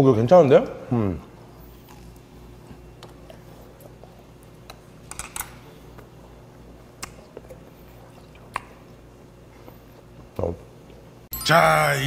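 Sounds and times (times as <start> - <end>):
man chewing food: 1.3 - 11.2
wet mouth clicks and smacks: 7.0 - 7.5, 8.1 - 9.0.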